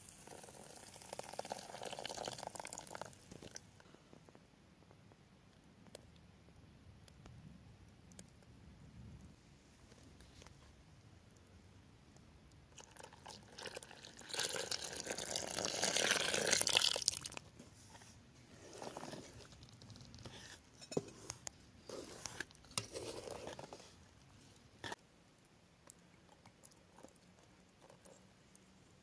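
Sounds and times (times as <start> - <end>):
milk pouring into bowl: 0.2 - 3.7, 12.8 - 17.5
wooden spoon scraping bowl: 17.7 - 24.0.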